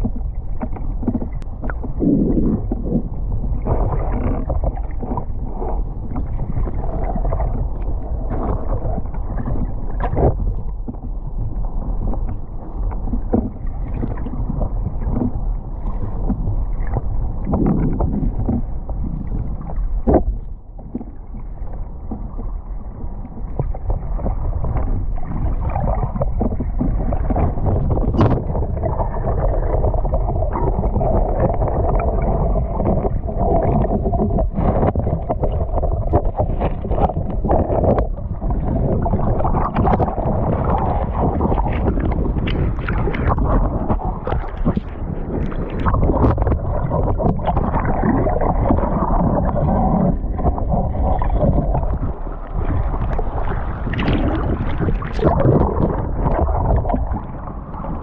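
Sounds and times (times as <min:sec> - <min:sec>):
muffled underwater surf rumble: 0:00.0 - 0:58.0
water splashing: 0:23.3 - 0:58.0.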